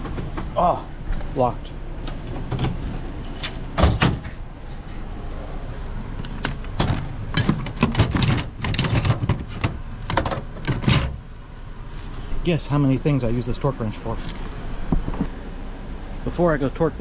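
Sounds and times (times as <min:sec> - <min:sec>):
metal tools clunking and rattling: 0:02.1 - 0:05.0, 0:06.4 - 0:11.2.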